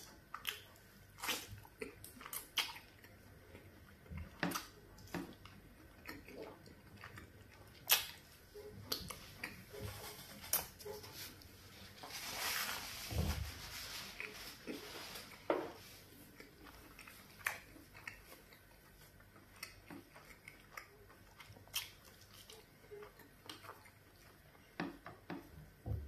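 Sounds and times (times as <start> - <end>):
wet lip smacks and chewing: 0.0 - 9.8, 16.3 - 25.0
tissue rustling: 9.7 - 16.4.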